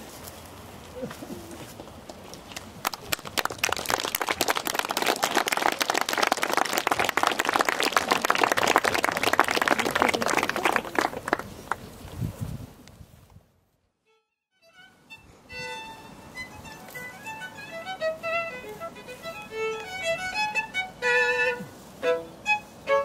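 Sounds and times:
crowd applauding: 2.5s - 11.9s.

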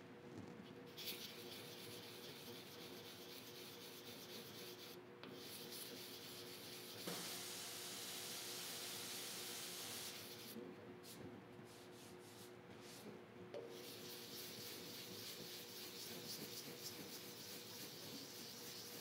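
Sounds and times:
hand-sanding metal: 1.0s - 7.2s, 13.7s - 19.0s.

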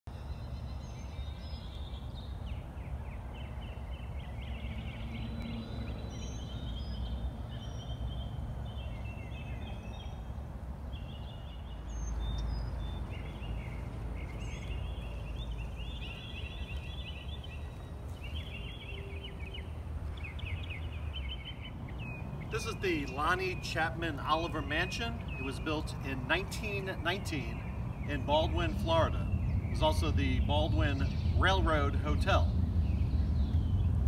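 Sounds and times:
birds chirping in trills: 0.1s - 34.0s
steady low rumble: 27.4s - 34.0s.

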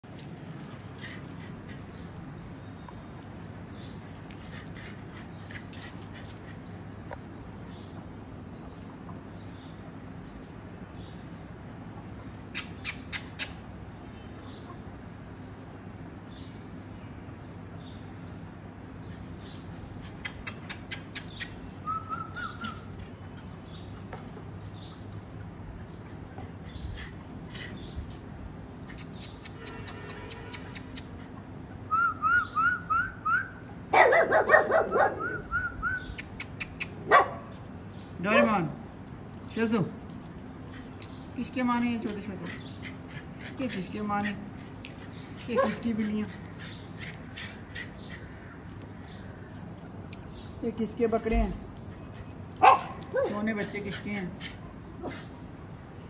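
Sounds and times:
harsh rapid bird calls: 12.0s - 14.8s, 19.0s - 24.0s, 25.7s - 38.6s, 40.1s - 55.5s.

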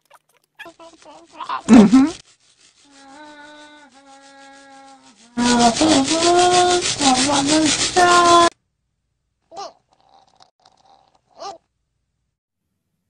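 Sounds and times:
toothbrush scrubbing: 0.0s - 8.5s, 9.9s - 11.6s
person humming: 0.7s - 2.2s, 2.9s - 8.5s.

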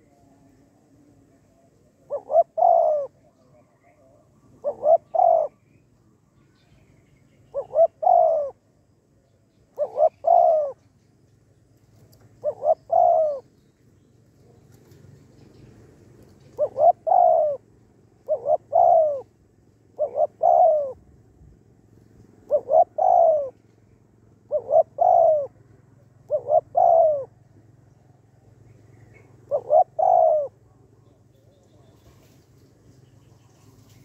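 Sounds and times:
dove cooing: 1.9s - 5.8s, 7.5s - 8.6s, 9.7s - 10.8s, 12.0s - 13.6s, 16.3s - 21.2s, 22.4s - 23.7s, 24.3s - 27.5s, 28.9s - 32.4s.

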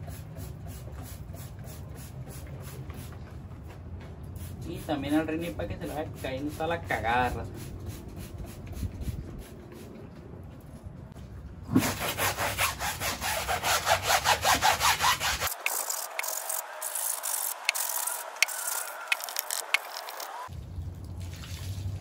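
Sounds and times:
brush scrubbing a tire: 4.4s - 9.9s, 11.8s - 20.4s.

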